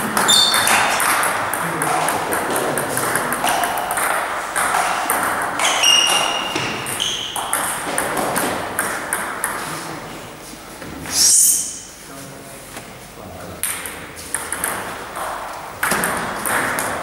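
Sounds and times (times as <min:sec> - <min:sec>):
table tennis ball clicking: 0:00.2 - 0:09.6.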